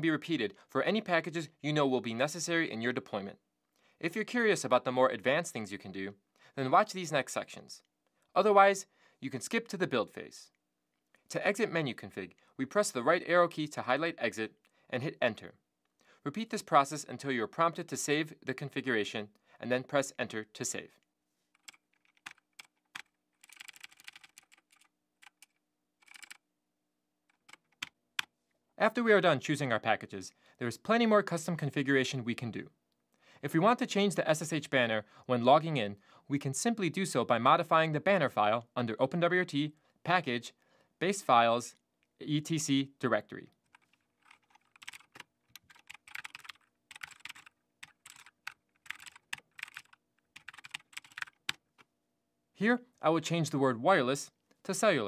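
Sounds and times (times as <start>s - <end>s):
computer keyboard tapping: 21.6s - 26.4s, 27.3s - 28.0s, 43.7s - 51.9s.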